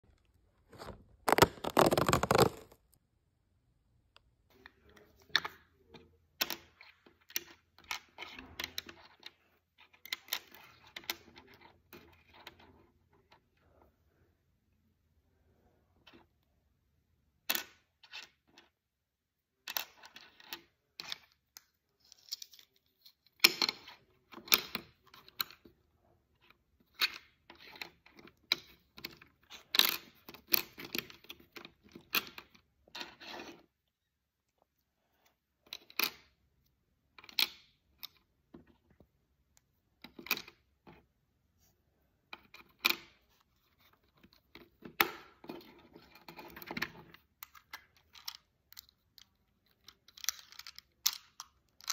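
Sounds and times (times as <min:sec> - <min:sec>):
plastic toy blocks clicking: 0:46.1 - 0:51.9.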